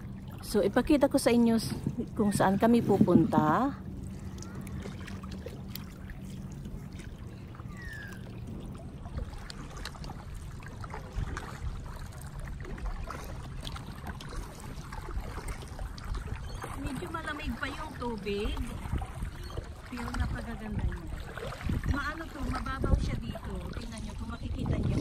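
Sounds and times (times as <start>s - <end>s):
steady low rumble: 0.0s - 16.4s
small splashes: 0.0s - 25.0s
water lapping around kayak hull: 0.0s - 25.0s.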